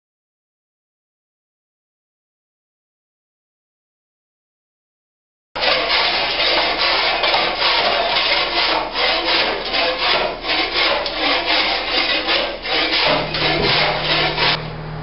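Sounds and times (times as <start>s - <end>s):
floor scraper rasping on concrete: 5.6s - 14.7s
steady low hum: 11.7s - 15.0s.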